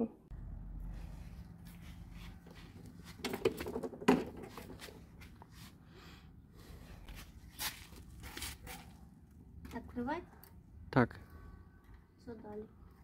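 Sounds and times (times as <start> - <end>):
scuffing and rustling: 1.1 - 3.6, 7.0 - 9.0.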